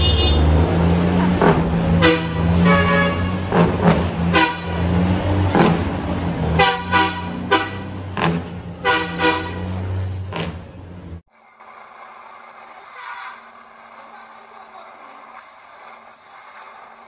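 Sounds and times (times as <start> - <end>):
truck horn blasts: 0.0 - 1.0, 1.8 - 5.3, 6.4 - 10.0.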